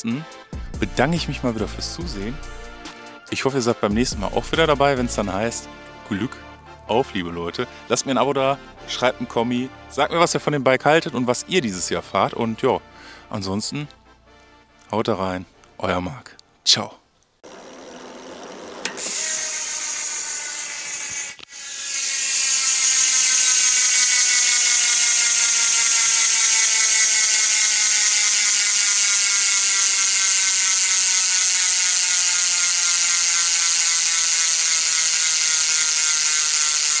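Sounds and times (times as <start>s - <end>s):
bicycle hub ratchet buzzing: 17.4s - 37.0s.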